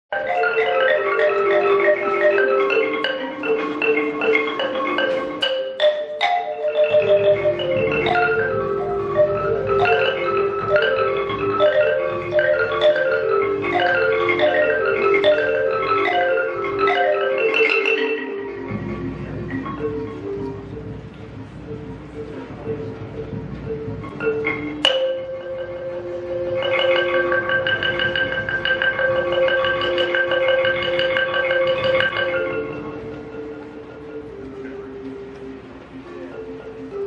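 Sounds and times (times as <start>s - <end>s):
percussion hits: 0.1s - 37.0s
jazz band playing: 0.2s - 37.0s.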